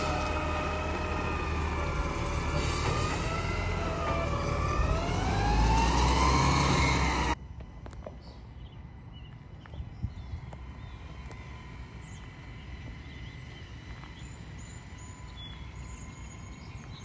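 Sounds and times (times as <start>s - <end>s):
garbage truck engine whining: 0.0s - 7.4s.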